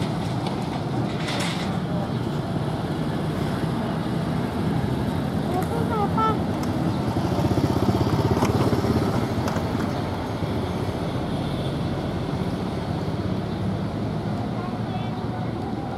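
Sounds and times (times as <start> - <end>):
street traffic: 0.0 - 15.9
small motorcycle engine passing: 4.2 - 10.2.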